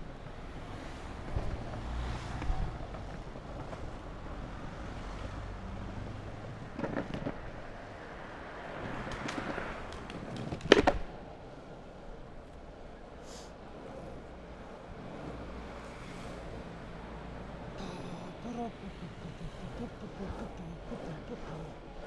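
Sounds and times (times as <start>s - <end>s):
longboard wheels rolling: 0.0s - 22.0s
board clacking over bumps: 6.4s - 7.8s, 8.6s - 11.3s.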